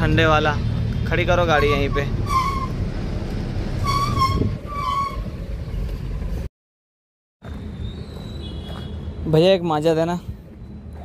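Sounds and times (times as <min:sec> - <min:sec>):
road rumble: 0:00.0 - 0:06.5, 0:07.4 - 0:11.0
truck diesel engine: 0:00.0 - 0:06.5
short high-pitched squeaks: 0:01.7 - 0:02.8, 0:03.8 - 0:05.3.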